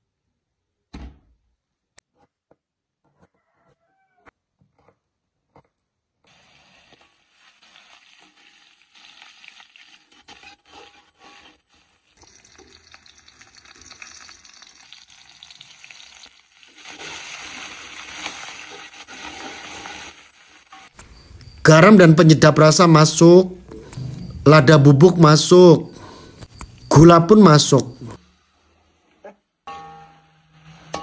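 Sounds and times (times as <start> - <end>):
oil sizzling in wok: 6.2 - 21.7, 26.4 - 31.0
spatula stirring: 6.3 - 21.0.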